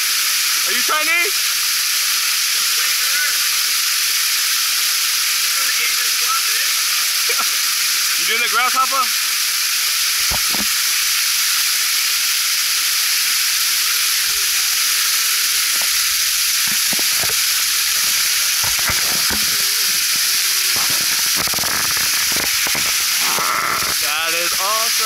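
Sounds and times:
waterfall splashing on rock: 0.0 - 25.0.

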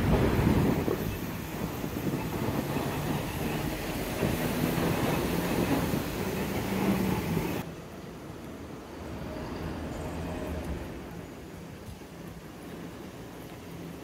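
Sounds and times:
rail vehicle rumbling: 0.0 - 14.0.

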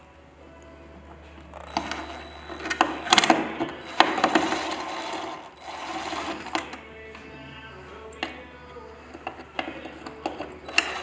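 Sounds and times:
cordless drill driving screws: 1.6 - 6.7, 10.0 - 11.0.

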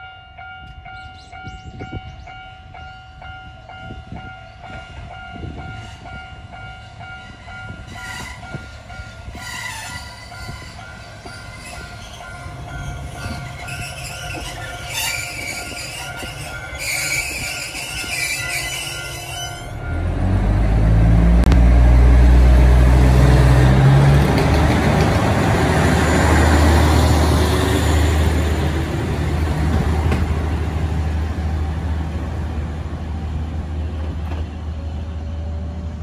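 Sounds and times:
rail and wheel noise: 0.0 - 36.0
diesel railcar engine throttling up: 19.7 - 36.0.

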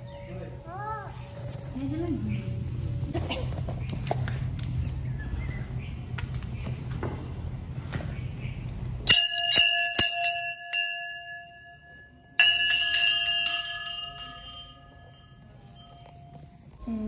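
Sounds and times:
brass bells ringing: 9.1 - 17.0.

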